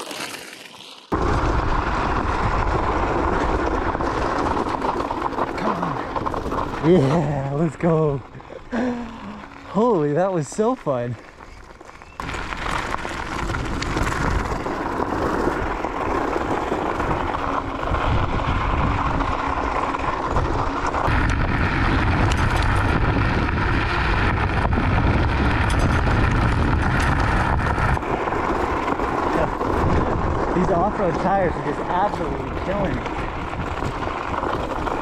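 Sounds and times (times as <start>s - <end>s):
tyres crunching on gravel: 0.0s - 35.0s
wind buffeting microphone: 12.2s - 35.0s.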